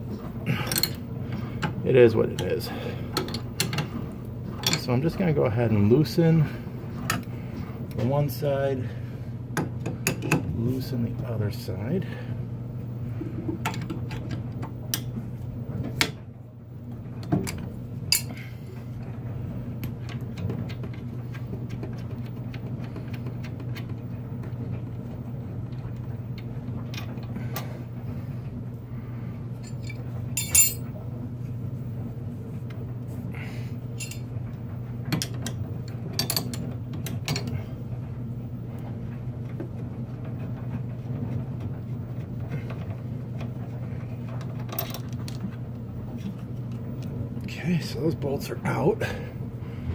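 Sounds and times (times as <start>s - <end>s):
steady low hum: 0.0s - 49.9s
wrenches clinking on bolts: 29.7s - 30.8s.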